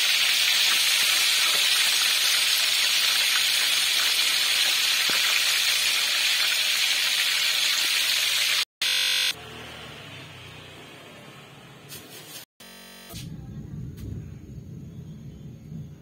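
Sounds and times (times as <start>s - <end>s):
fish sizzling in hot oil: 0.0s - 8.7s.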